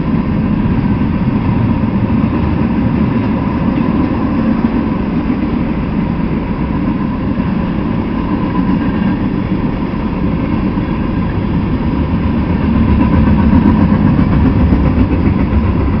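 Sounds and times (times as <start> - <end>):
freight train rumbling on rails: 0.0 - 16.0.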